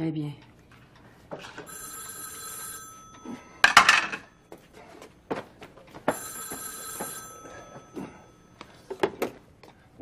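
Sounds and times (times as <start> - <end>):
telephone ringing: 1.4 - 4.6, 6.0 - 9.0.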